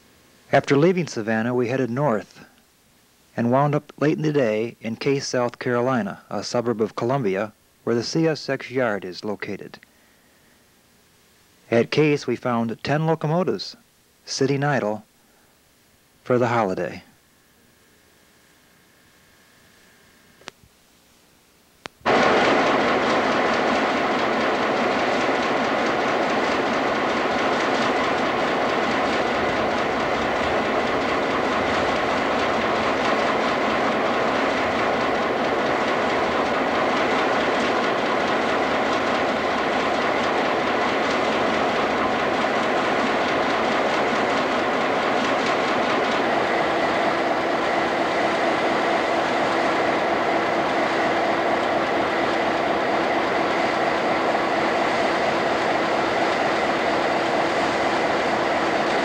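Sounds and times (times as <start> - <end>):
locomotive engines idling: 22.1 - 59.0.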